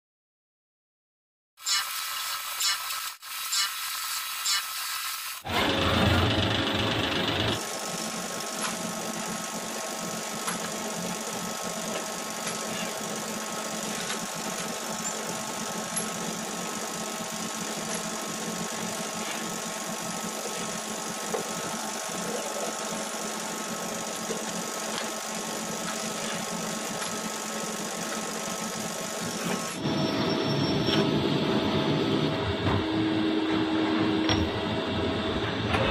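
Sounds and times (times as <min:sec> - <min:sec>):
lathe cutting noise: 0:05.2 - 0:32.5
machine rumble: 0:05.5 - 0:35.9.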